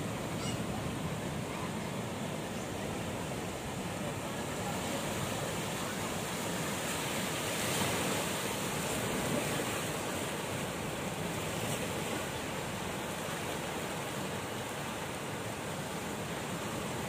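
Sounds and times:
small waves breaking on rocks: 0:04.1 - 0:17.0.

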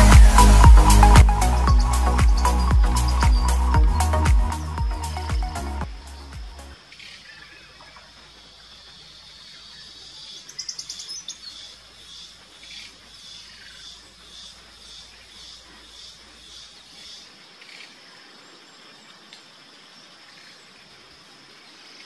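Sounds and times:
high chirp: 0:00.0 - 0:06.8
insects high-pitched drone: 0:00.0 - 0:09.4.

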